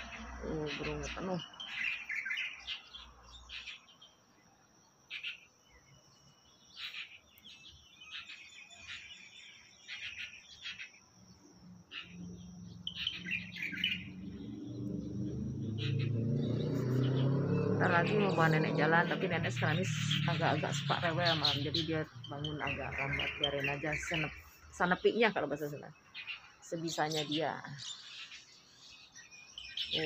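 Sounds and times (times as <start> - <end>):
songbirds chirping: 0.0 - 30.0.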